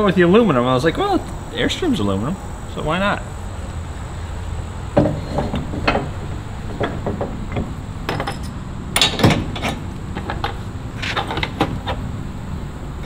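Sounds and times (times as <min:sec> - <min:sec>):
metal hitch clunking: 0:04.9 - 0:12.3.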